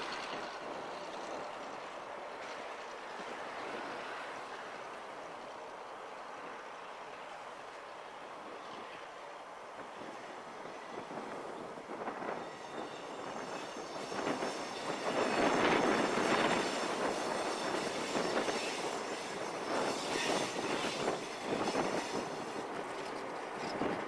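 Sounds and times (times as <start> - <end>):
diesel locomotive engine: 0.0 - 24.0
wheel and rail clatter: 0.0 - 24.0.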